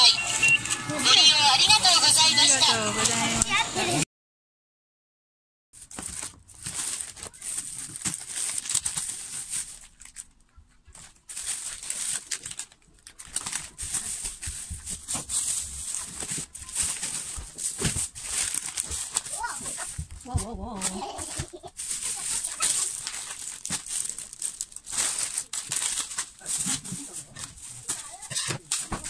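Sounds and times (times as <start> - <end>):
plastic bags crinkling: 5.8 - 29.0.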